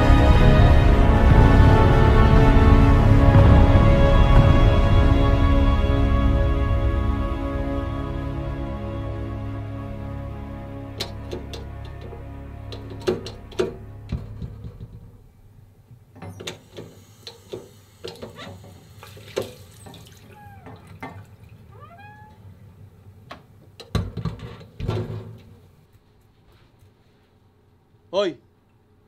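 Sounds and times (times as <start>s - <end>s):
door latch clicking: 11.0s - 12.1s
heavy thumps: 11.0s - 15.4s
water running in a sink: 16.6s - 21.7s.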